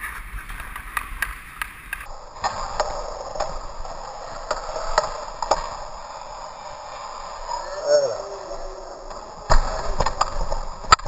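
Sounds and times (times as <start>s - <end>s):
hockey stick clicking on puck: 0.0s - 3.6s
skates scraping on ice: 0.0s - 11.0s.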